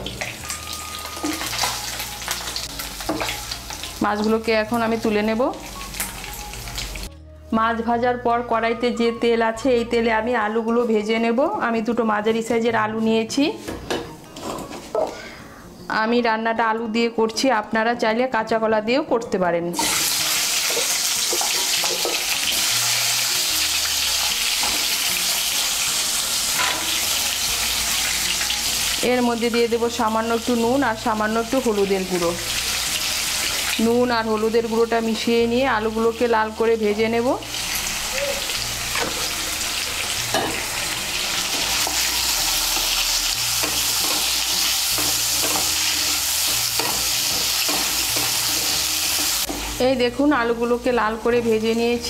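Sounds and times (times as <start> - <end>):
potatoes sizzling in hot oil: 0.0 - 7.1, 19.8 - 52.0.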